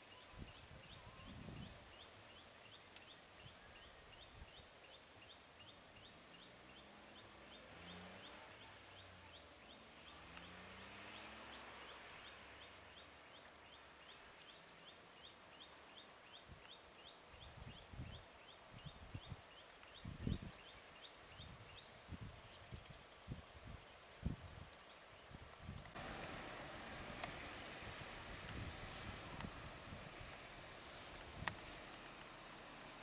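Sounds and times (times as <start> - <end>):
faint high chirp: 0.0 - 1.7
faint engine hum: 26.0 - 33.0.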